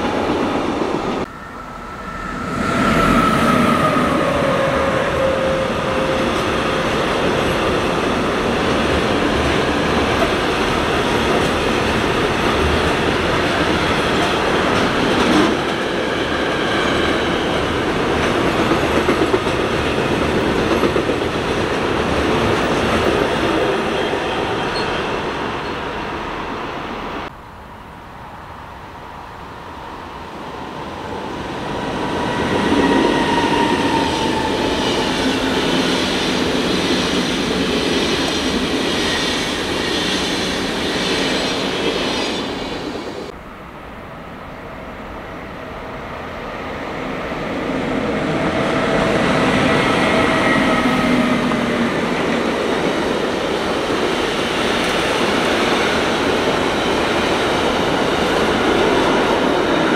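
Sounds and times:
freight train wheels on rails: 0.0s - 27.4s, 28.7s - 59.9s
passenger train passing: 0.0s - 59.9s
train wheel squeal: 1.3s - 7.7s, 23.8s - 26.0s, 31.7s - 42.8s.

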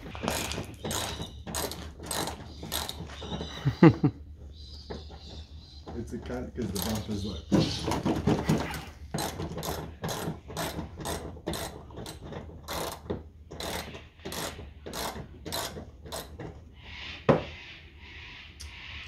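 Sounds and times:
ratchet wrench clicking: 0.3s - 3.0s, 13.6s - 16.4s.

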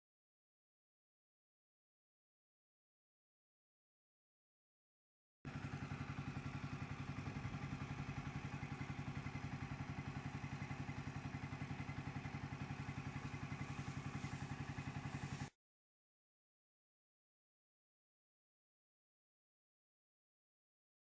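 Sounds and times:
engine idling with rapid pulse: 5.5s - 15.6s.

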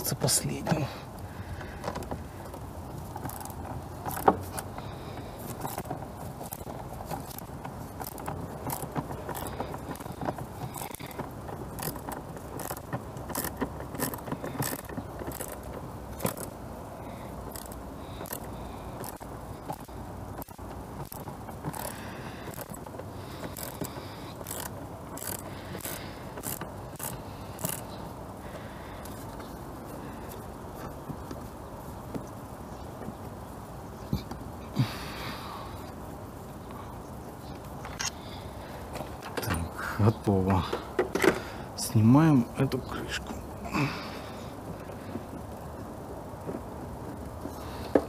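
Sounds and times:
ratchet wrench clicking: 3.2s - 4.7s, 5.4s - 16.6s, 17.4s - 28.0s.

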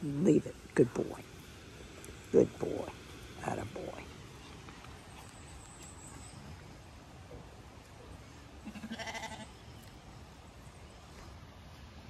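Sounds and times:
low background noise: 0.0s - 12.0s
sheep bleating: 8.6s - 9.5s.

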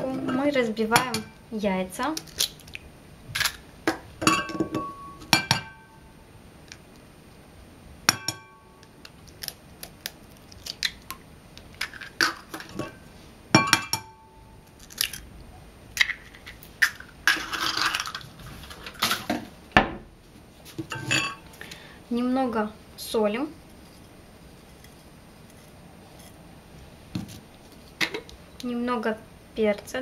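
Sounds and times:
eggshells crackling: 1.9s - 3.7s, 8.8s - 12.8s, 14.6s - 15.3s, 16.0s - 19.2s.

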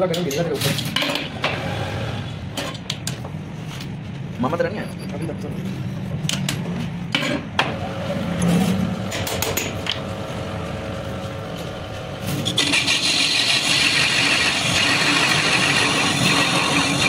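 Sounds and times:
metal lathe running: 12.4s - 17.0s.

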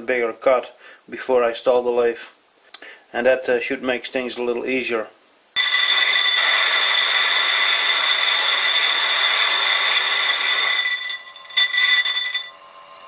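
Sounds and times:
hiss of metal cutting: 5.6s - 10.8s
lathe tool bit squealing: 5.6s - 12.5s.

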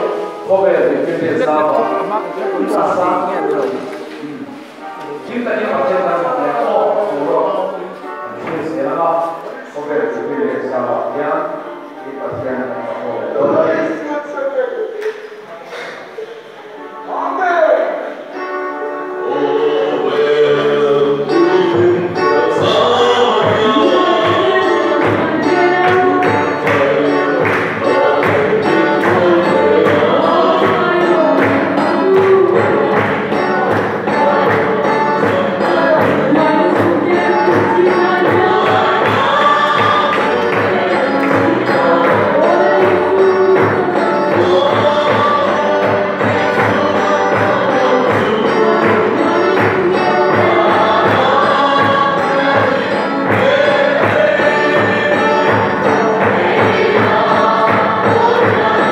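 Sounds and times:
congregation singing a hymn: 0.0s - 58.9s
steady drumbeat: 21.7s - 58.9s.

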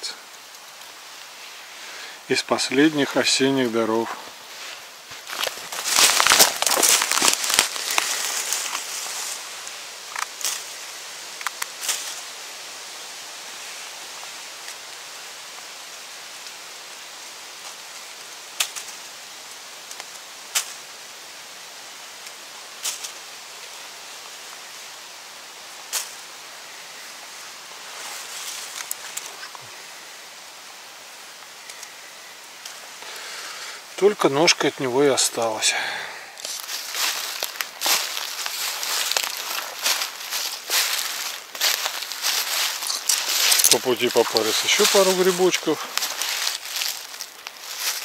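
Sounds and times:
leaves rustling: 0.0s - 48.0s
steady outdoor hiss: 0.0s - 48.0s.

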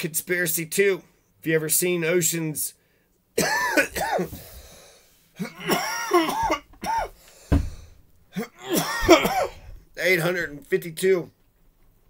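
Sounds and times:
man clearing his throat: 3.4s - 4.4s, 5.4s - 7.2s, 8.3s - 9.7s
man coughing: 3.4s - 4.5s, 5.4s - 7.2s, 8.3s - 9.7s.

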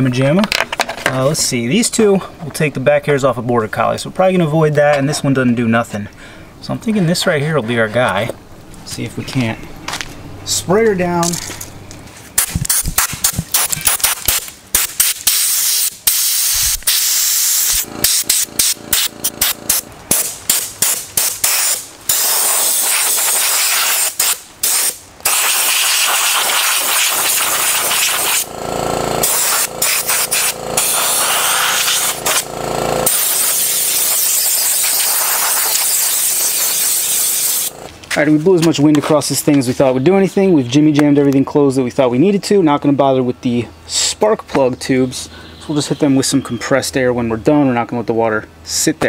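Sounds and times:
compressed air blow gun hissing: 12.4s - 37.9s.

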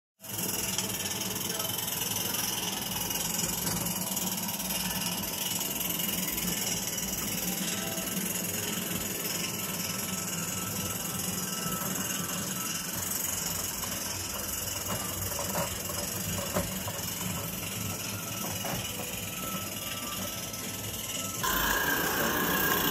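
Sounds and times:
model steam locomotive running: 0.2s - 22.9s
hissing steam: 21.4s - 22.9s.

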